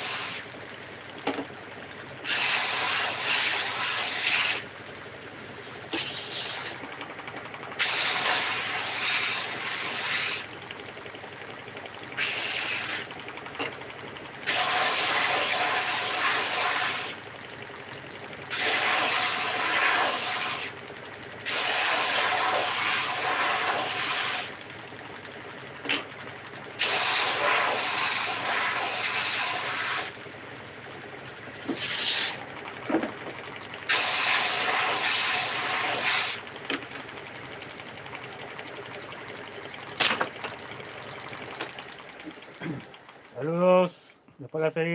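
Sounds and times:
belt sander running: 0.0 - 44.9
wood grinding on sander belt: 2.2 - 4.6, 5.4 - 6.9, 7.8 - 10.5, 12.2 - 13.1, 21.5 - 24.5, 26.8 - 30.1, 31.6 - 33.2, 33.9 - 36.9.

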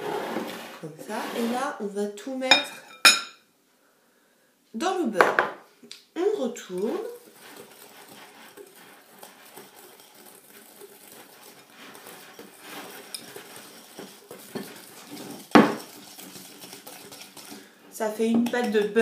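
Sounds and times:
whisk scraping through mixture: 0.0 - 1.8, 6.2 - 19.0.

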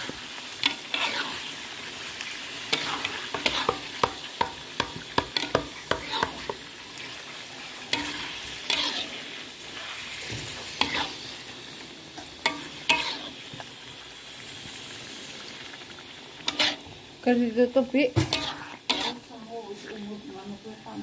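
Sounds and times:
spatula scraping a wok: 0.0 - 1.7, 2.6 - 13.7, 16.4 - 17.0, 17.9 - 20.1
frying sizzle: 0.0 - 21.0.

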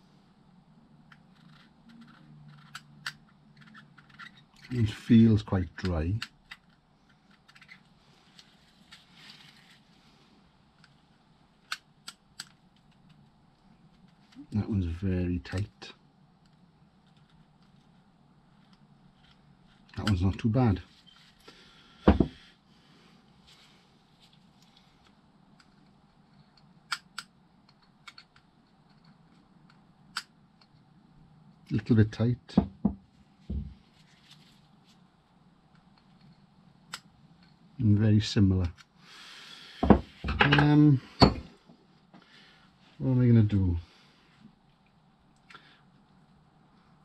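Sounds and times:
small metal parts clicking: 1.1 - 4.8.

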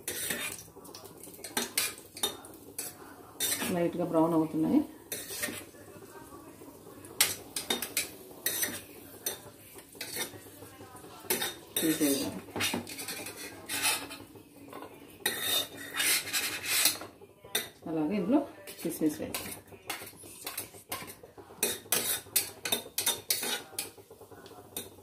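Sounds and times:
steel spoon scraping cookware: 0.0 - 0.6, 1.4 - 3.8, 5.1 - 5.6, 7.2 - 9.4, 10.0 - 10.4, 11.3 - 14.2, 15.2 - 17.7, 18.8 - 23.9.

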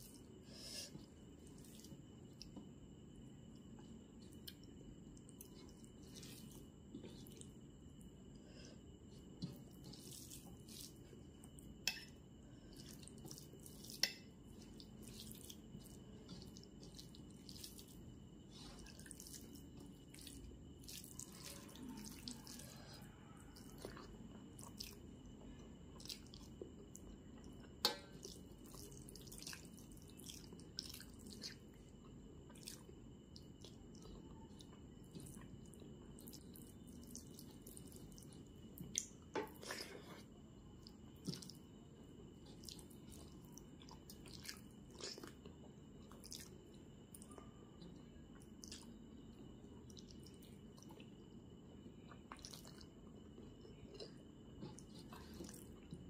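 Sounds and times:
wet chewing with mouth clicks: 3.5 - 7.7, 9.0 - 41.8, 42.4 - 51.4, 52.0 - 56.0
rice squishing in fingers: 12.6 - 25.0.

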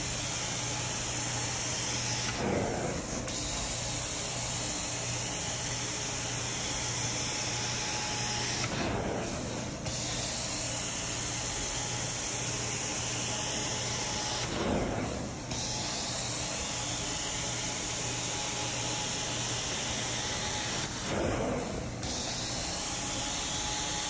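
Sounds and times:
low machine hum: 19.6 - 24.0.

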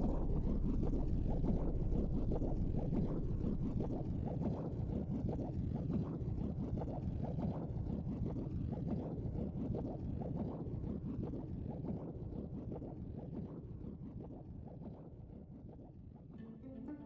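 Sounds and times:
low muffled rumble: 0.0 - 5.1.

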